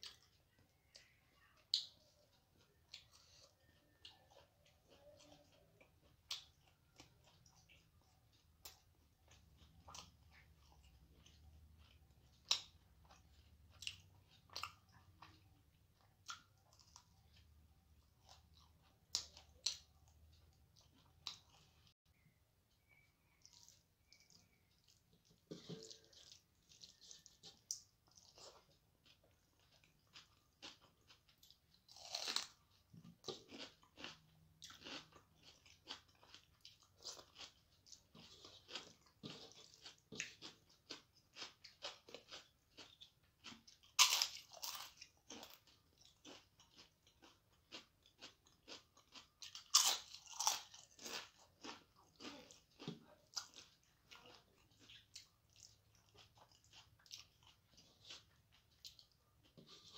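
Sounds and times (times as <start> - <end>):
person chewing rice: 0.0 - 59.9
crunching fried crisps: 22.8 - 59.9.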